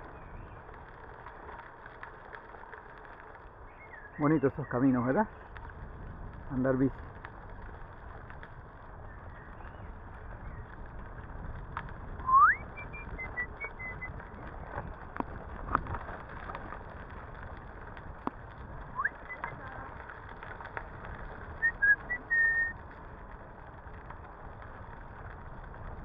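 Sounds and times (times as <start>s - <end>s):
small clicks and rattles: 0.0s - 12.2s, 12.8s - 26.0s
bicycle tyres on gravel: 0.0s - 26.0s
rising whistle: 12.2s - 14.1s, 18.9s - 19.6s, 21.6s - 22.8s
faint high chirps: 12.3s - 14.1s, 21.6s - 22.7s.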